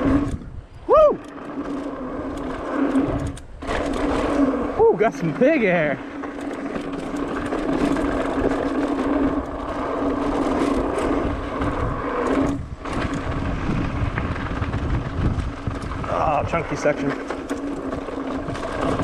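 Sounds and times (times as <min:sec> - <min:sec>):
wind on microphone: 0:00.0 - 0:04.9, 0:08.0 - 0:17.2
bike rattling over stones: 0:00.0 - 0:19.0
bike tyres rolling on dirt: 0:00.0 - 0:19.0.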